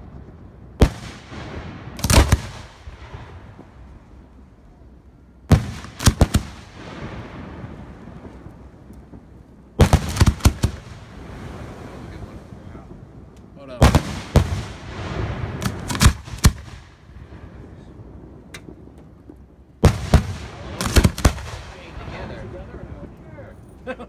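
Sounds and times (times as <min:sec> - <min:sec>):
firework shells bursting: 0:00.8 - 0:04.3, 0:05.5 - 0:11.6, 0:13.3 - 0:17.2, 0:18.4 - 0:23.9
low rumble: 0:10.7 - 0:24.0.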